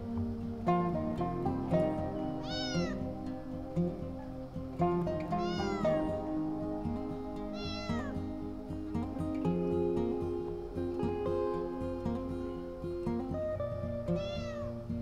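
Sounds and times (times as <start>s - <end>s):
background music: 0.0s - 15.0s
cat meowing: 2.4s - 3.0s, 5.3s - 6.1s, 7.5s - 8.2s, 14.1s - 14.7s.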